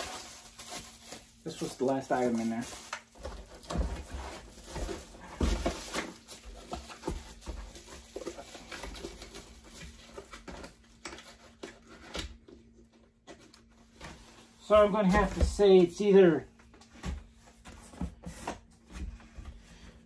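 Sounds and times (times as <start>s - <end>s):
packaging rustling and crinkling: 0.0s - 12.4s.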